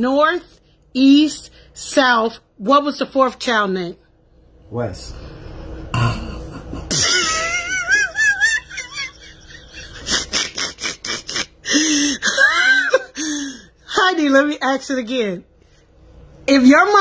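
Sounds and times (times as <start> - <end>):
high wavering laugh: 6.0 - 13.2.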